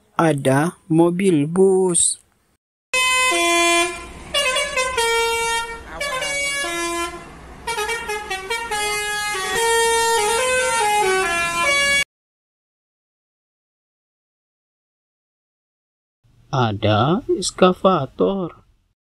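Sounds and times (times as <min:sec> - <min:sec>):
multi-tone musical air horn: 0:03.0 - 0:12.0.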